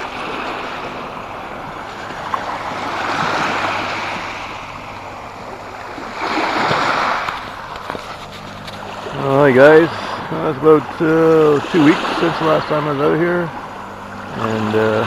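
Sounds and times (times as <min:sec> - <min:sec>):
small waves washing onto pebbles: 0:05.9 - 0:09.8.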